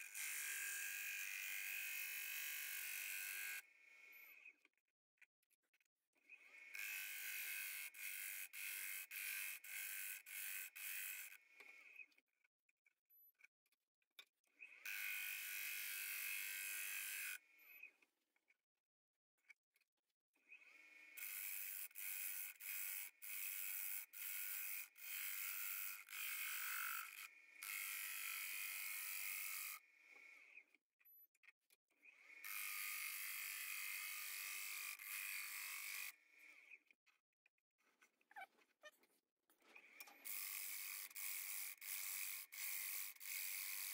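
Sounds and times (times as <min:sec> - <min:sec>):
gouge cutting wood on lathe: 0:32.5 - 0:36.1, 0:40.2 - 0:43.9.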